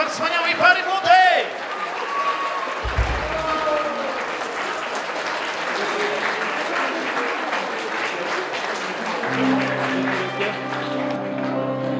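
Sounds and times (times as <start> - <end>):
crowd applauding: 0.0 - 11.9
music: 9.0 - 11.9.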